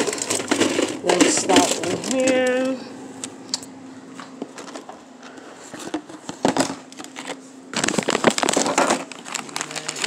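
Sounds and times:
food containers clicking and knocking: 0:00.0 - 0:02.8, 0:05.8 - 0:10.0
faint hum: 0:00.0 - 0:10.0.

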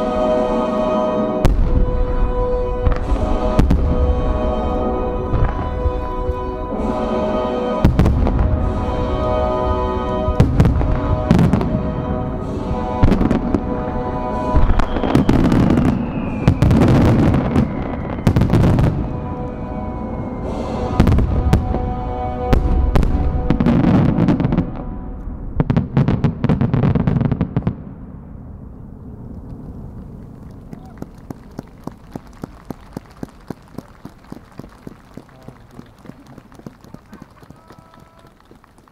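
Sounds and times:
music with sustained notes: 0:00.0 - 0:27.2
fireworks cracking and booming: 0:01.4 - 0:07.0, 0:07.8 - 0:19.7, 0:20.4 - 0:28.3.

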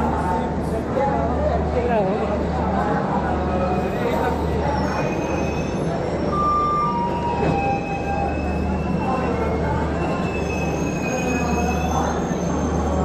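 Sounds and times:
train coaches rumbling: 0:00.0 - 0:13.0
high metallic squeals: 0:06.8 - 0:13.0.

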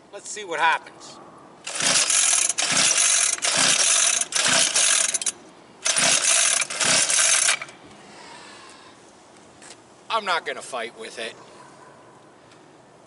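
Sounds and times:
small engine turning over: 0:01.6 - 0:07.8.

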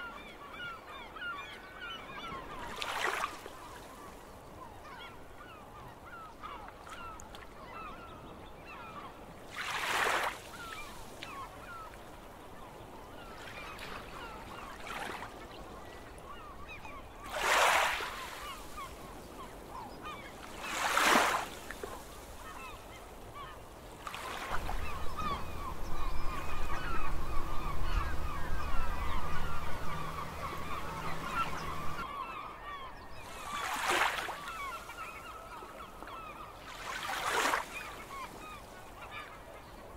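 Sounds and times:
sea waves washing ashore: 0:09.4 - 0:16.5, 0:17.2 - 0:39.2
flock of birds calling: 0:22.4 - 0:39.8.

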